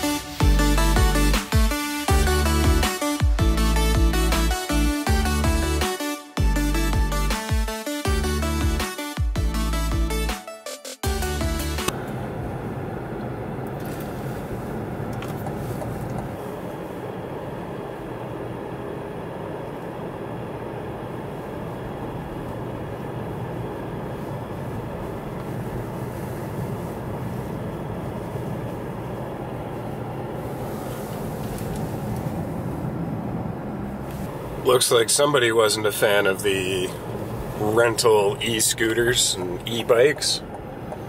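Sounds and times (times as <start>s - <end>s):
road and tyre noise: 0.0s - 8.8s, 11.0s - 41.0s
car engine hum: 0.0s - 10.4s, 11.0s - 41.0s
music: 0.0s - 12.0s.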